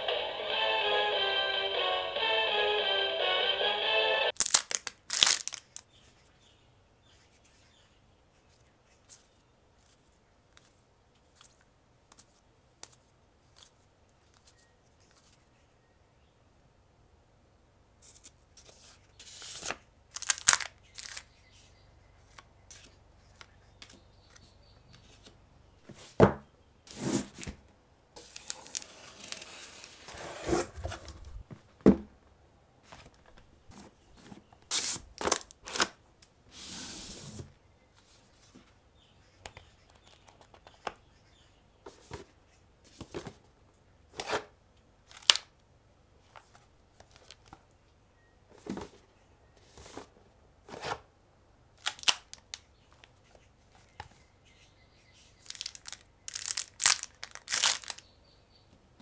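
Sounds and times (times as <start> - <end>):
paper packaging rustling: 4.3 - 5.8, 18.0 - 21.3, 28.2 - 31.6, 32.9 - 36.0, 55.4 - 58.0.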